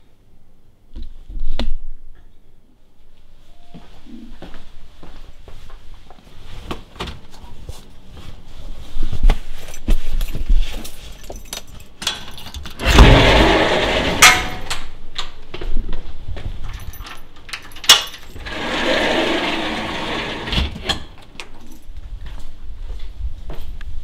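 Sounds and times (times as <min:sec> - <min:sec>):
keys jangling: 0:09.6 - 0:12.8, 0:16.6 - 0:18.5, 0:21.4 - 0:21.9.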